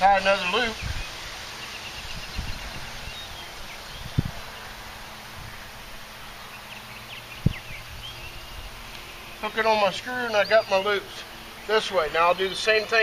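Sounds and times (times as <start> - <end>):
steady outdoor hiss: 0.0 - 13.0.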